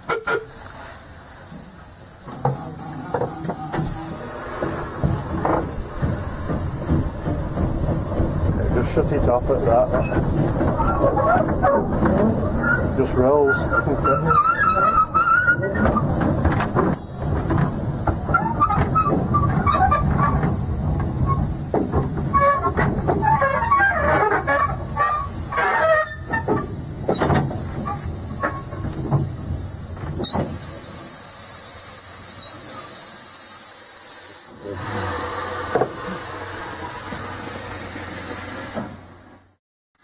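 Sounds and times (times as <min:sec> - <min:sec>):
steam hiss: 0:00.0 - 0:11.5, 0:24.2 - 0:39.4
wheels and running gear clanking: 0:02.3 - 0:30.6.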